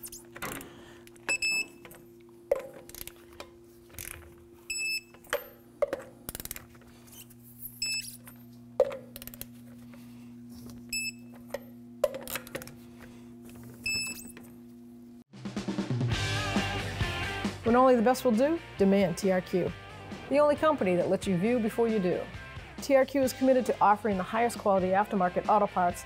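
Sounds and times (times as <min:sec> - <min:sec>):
steady low hum: 0:00.0 - 0:15.2
digital torque wrench beeping: 0:07.1 - 0:08.2.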